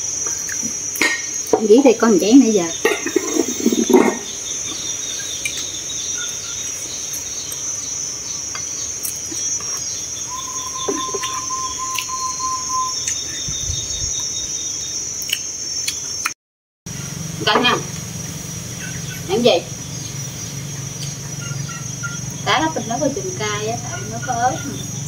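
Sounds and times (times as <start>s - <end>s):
insects chirring: 0.0s - 25.0s
thin steady tone: 8.6s - 13.6s
quick repeated chirps: 9.0s - 14.1s.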